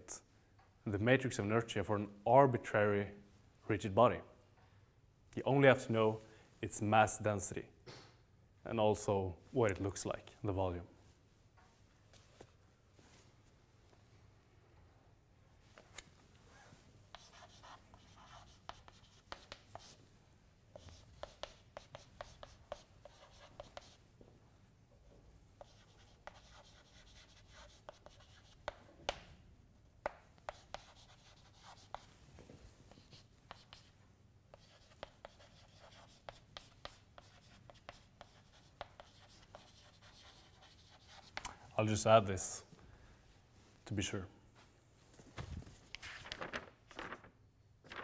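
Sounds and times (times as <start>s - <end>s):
chalk writing on blackboard: 17.1s - 20.0s, 20.7s - 24.0s, 25.6s - 28.8s, 30.0s - 32.1s, 32.9s - 41.5s.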